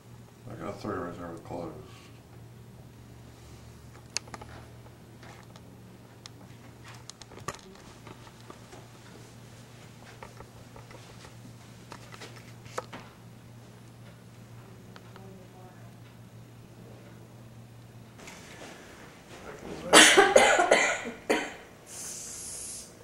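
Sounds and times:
steady low hum: 0.0 - 23.0
faint clicks and taps: 13.8 - 16.2.

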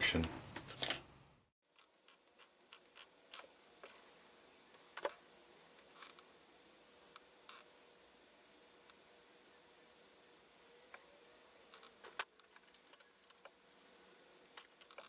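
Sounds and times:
faint clicks of small parts: 11.7 - 15.0.

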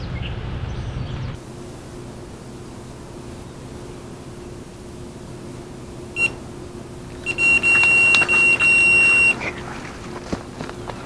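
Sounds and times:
bite alarm beeping: 6.1 - 6.4, 7.2 - 9.5.

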